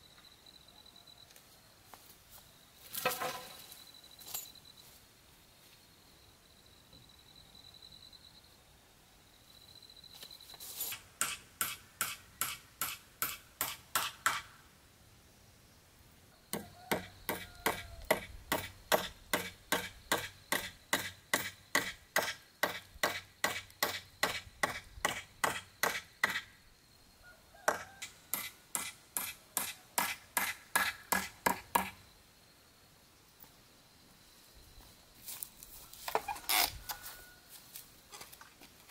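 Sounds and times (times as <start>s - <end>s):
hammer driving nails into wood: 11.2s - 14.5s, 16.6s - 26.5s, 27.7s - 32.0s.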